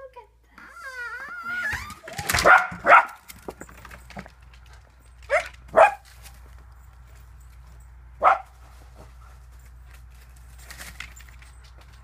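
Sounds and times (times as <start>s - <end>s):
clatter of knocks: 2.0s - 5.7s
dog barking excitedly: 2.2s - 3.5s, 5.2s - 6.1s, 8.2s - 8.6s.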